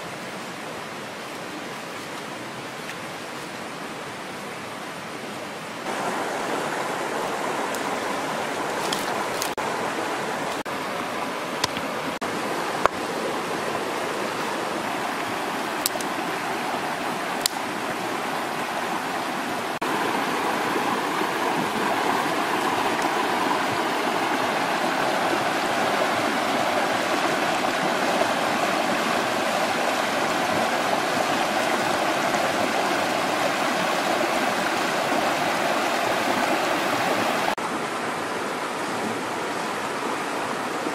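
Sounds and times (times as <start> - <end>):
stream rushing over stones: 0.0 - 40.9
faint high ticks: 15.8 - 16.1.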